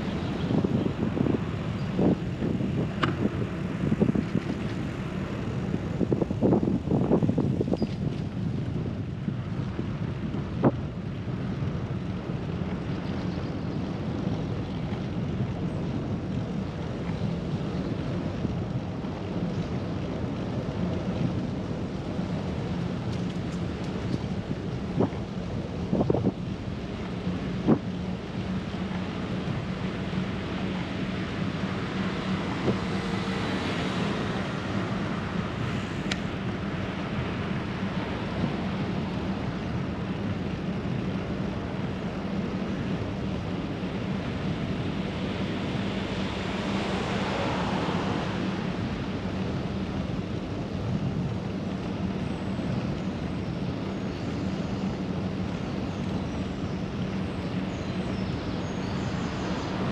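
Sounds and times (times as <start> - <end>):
traffic hum: 0.0 - 59.9
vehicle passing: 46.0 - 49.3.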